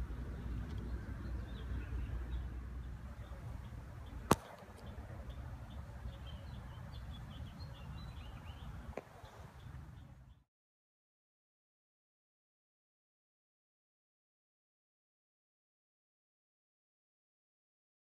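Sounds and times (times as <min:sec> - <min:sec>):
low outdoor rumble: 0:00.0 - 0:10.4
faint birds chirping: 0:00.0 - 0:10.5.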